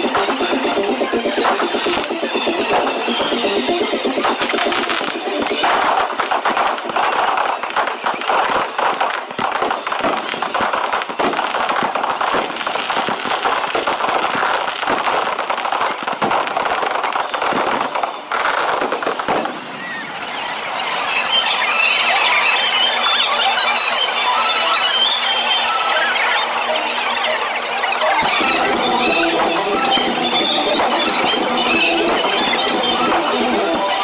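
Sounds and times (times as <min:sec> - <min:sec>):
firework crackle: 0:00.0 - 0:20.6.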